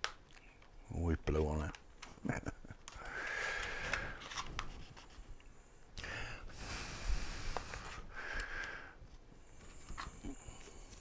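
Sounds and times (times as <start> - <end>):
breathy puffs of air: 6.0 - 9.0.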